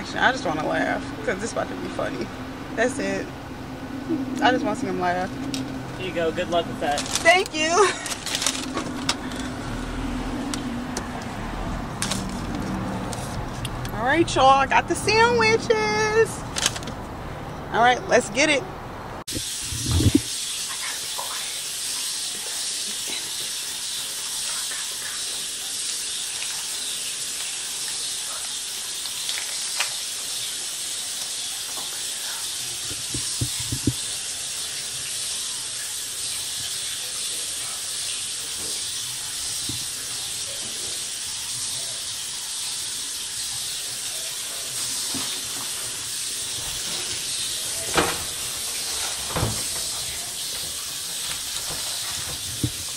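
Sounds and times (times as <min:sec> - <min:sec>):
steady hiss: 0:19.3 - 0:52.9
faint taps and knocks: 0:32.9 - 0:34.0.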